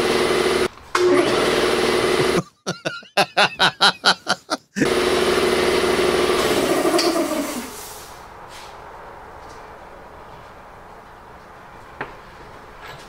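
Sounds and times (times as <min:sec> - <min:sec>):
air compressor running: 0:00.0 - 0:02.4, 0:04.8 - 0:08.0
people laughing: 0:02.2 - 0:04.9.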